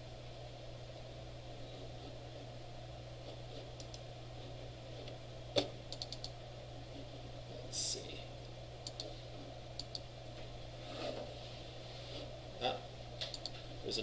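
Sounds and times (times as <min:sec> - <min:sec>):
steady low hum: 0:00.0 - 0:14.0
mouse and keyboard clicks: 0:05.6 - 0:06.4, 0:08.8 - 0:09.1, 0:13.2 - 0:13.6.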